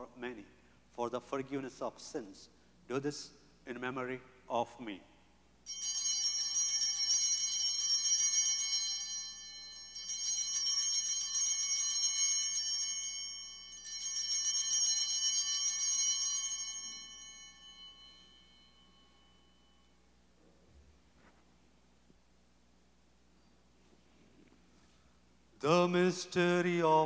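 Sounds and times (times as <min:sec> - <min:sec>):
altar bells ringing: 0:05.7 - 0:20.2.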